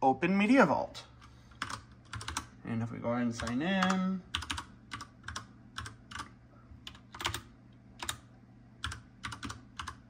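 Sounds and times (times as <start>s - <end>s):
faint low hum: 0.0s - 10.0s
keyboard keystrokes: 3.4s - 8.2s, 8.8s - 10.0s.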